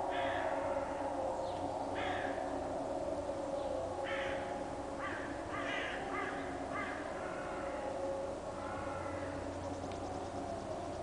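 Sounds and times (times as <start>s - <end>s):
crows cawing: 0.0s - 1.2s, 1.9s - 2.6s, 4.0s - 10.3s
distant siren steady tone: 0.0s - 11.0s.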